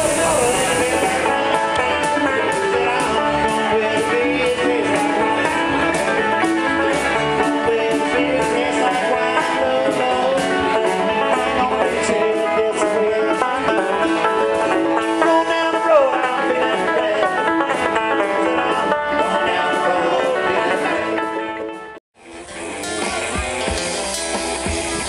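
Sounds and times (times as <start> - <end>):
hiss: 0.0 - 1.2
bluegrass band playing: 0.0 - 25.0.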